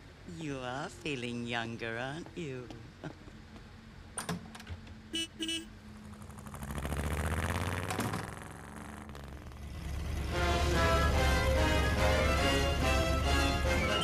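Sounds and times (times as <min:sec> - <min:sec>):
car horn toots: 0:05.1 - 0:05.7
car pulling away: 0:05.8 - 0:14.0
music: 0:10.3 - 0:14.0.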